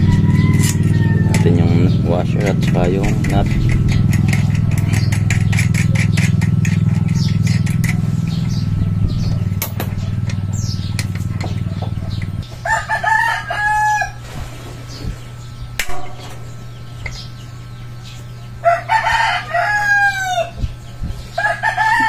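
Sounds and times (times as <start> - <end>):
rooster crowing: 0.0 - 1.6, 12.6 - 14.2, 18.6 - 20.6, 21.3 - 22.0
low mechanical hum: 0.0 - 22.0.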